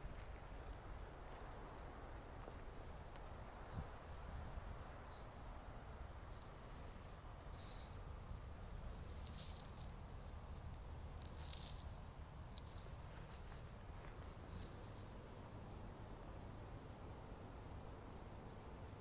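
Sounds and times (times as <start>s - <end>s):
dry leaves rustling and crackling: 0.0s - 5.4s, 7.5s - 15.4s
low rumble of wind: 0.0s - 19.0s.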